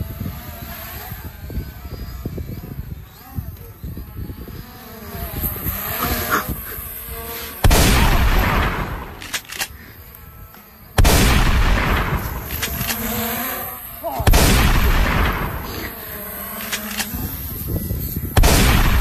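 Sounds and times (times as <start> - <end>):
loud gunshot blasts: 7.6 - 9.4, 11.0 - 13.0, 14.2 - 16.0, 18.4 - 19.0.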